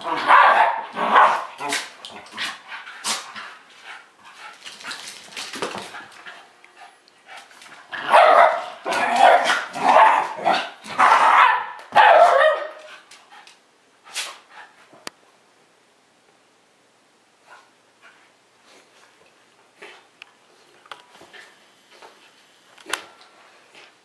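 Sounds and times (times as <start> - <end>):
dog barking loudly: 0.0 - 1.6, 8.0 - 12.9
dogs play-fighting: 0.0 - 15.1.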